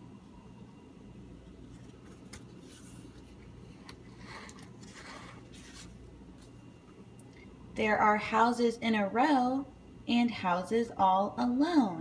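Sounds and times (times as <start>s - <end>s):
faint low hum: 0.0s - 12.0s
paper pages rustling: 1.5s - 6.6s.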